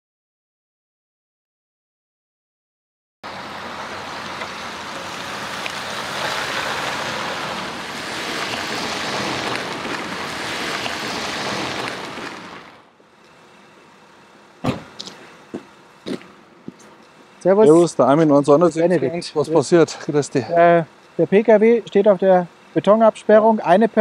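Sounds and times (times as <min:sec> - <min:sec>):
van engine and road noise: 0:03.2 - 0:24.0
sharp knock: 0:14.6 - 0:15.1.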